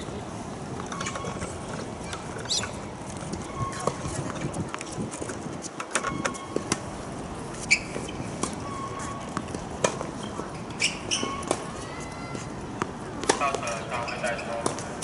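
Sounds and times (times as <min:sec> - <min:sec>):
shoe squeaks: 0:00.9 - 0:06.7, 0:07.5 - 0:12.6, 0:13.6 - 0:14.6
tennis ball bouncing: 0:05.9 - 0:06.9, 0:07.6 - 0:15.0
racket hitting tennis ball: 0:09.3 - 0:10.2, 0:10.8 - 0:13.8, 0:14.6 - 0:15.0.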